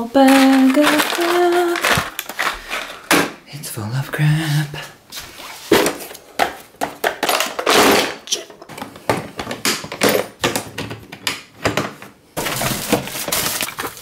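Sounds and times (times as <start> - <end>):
loose tools clattering: 6.8 - 8.9.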